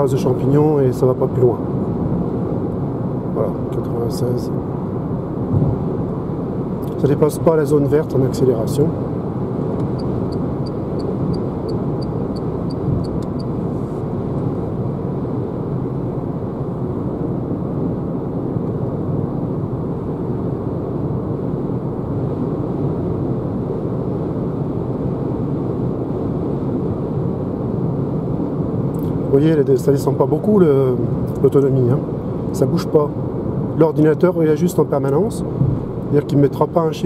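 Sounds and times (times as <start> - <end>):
road and tyre noise in car cabin: 0.0 - 37.0.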